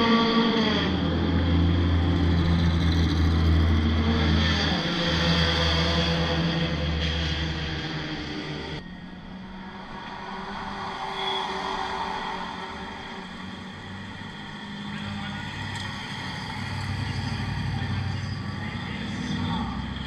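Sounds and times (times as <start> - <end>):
car engines at low revs: 13.1 - 20.0.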